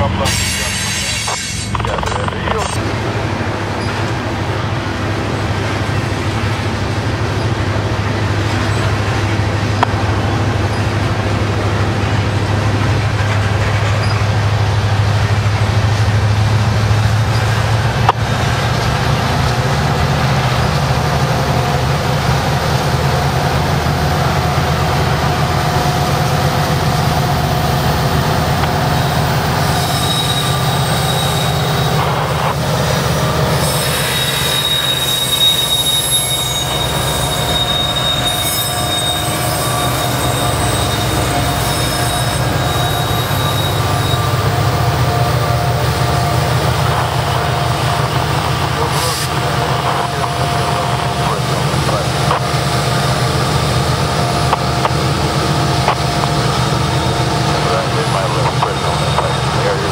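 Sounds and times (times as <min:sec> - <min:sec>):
freight train rumbling: 0:00.0 - 0:59.9
wheel squeal: 0:14.0 - 0:14.3, 0:29.6 - 0:32.0, 0:33.6 - 0:44.5.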